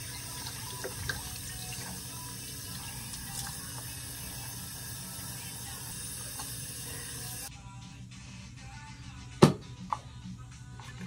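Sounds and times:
faucet running into sink: 0:00.0 - 0:07.5.

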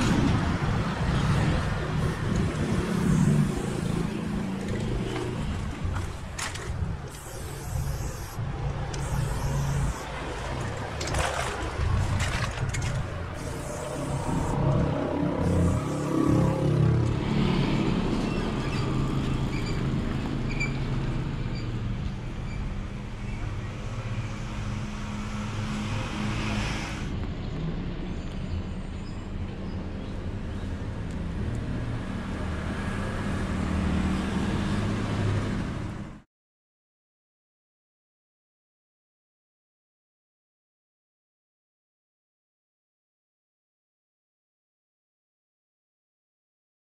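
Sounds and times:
engine hum: 0:00.0 - 0:28.2
road traffic rumble: 0:00.0 - 0:36.2
spray paint can hissing: 0:07.0 - 0:10.3, 0:12.8 - 0:16.6.

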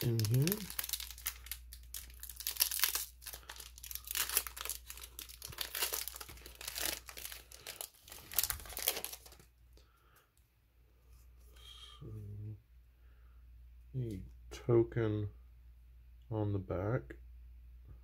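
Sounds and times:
foil wrapper tearing and crinkling: 0:00.0 - 0:09.4.

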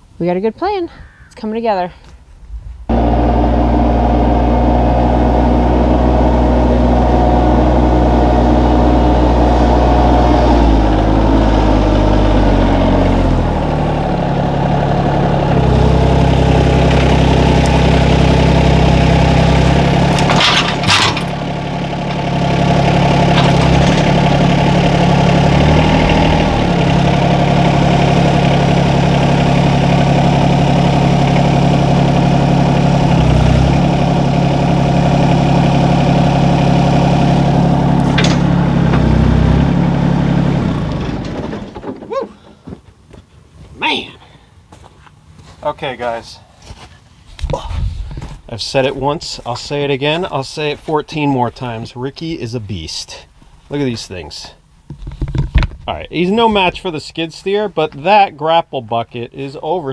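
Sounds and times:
tractor diesel engine under load: 0:02.9 - 0:43.0, 0:47.5 - 0:59.9
sharp metal clanks: 0:20.1 - 0:21.4, 0:38.0 - 0:39.1.

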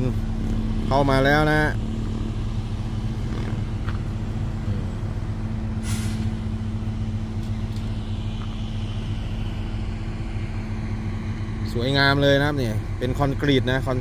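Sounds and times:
heavy diesel engine running: 0:00.0 - 0:14.0
air brakes hissing: 0:05.8 - 0:06.5.

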